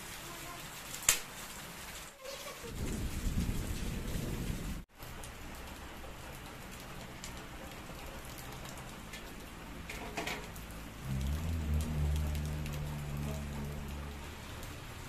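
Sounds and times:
rain pattering on wet ground: 0:00.0 - 0:15.0
low rumble: 0:10.8 - 0:15.0.

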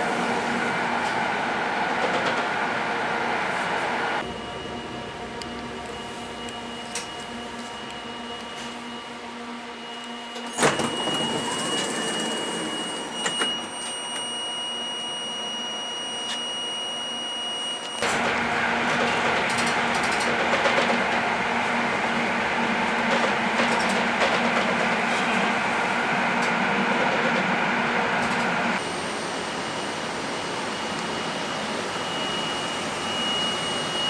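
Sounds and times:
train equipment hum: 0:00.0 - 0:13.2, 0:18.0 - 0:33.4
train rumbling on rails: 0:00.0 - 0:13.4, 0:18.0 - 0:34.0
high whining tones: 0:04.2 - 0:18.0.

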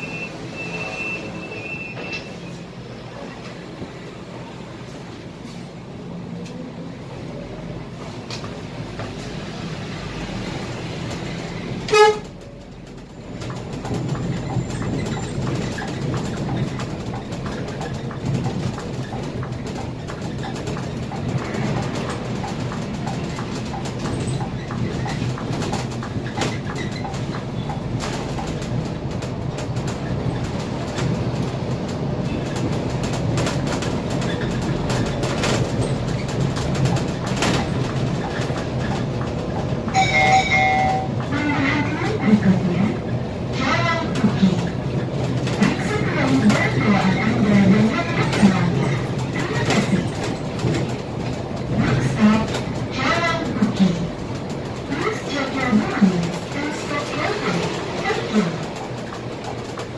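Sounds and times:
bus engine and road rumble: 0:00.0 - 0:59.9
short loud beep: 0:40.0 - 0:41.1.

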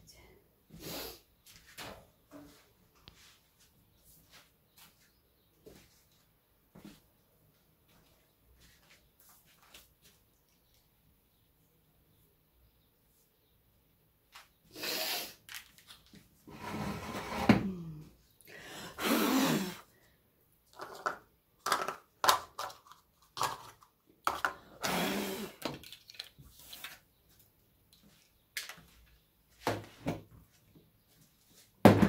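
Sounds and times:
scraping and rustling on table: 0:16.4 - 0:17.7.

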